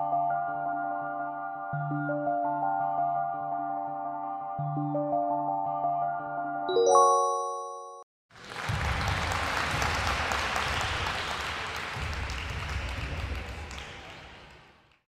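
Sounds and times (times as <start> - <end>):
bright chime: 6.7 - 8.0
recorded applause: 8.3 - 15.0.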